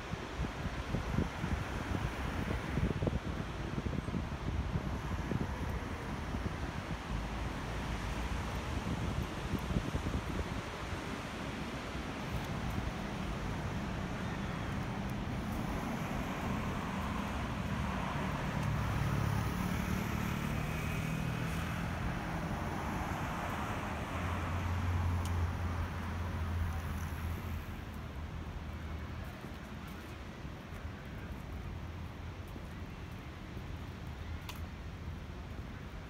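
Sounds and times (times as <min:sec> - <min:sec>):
road traffic passing: 0:03.8 - 0:30.2.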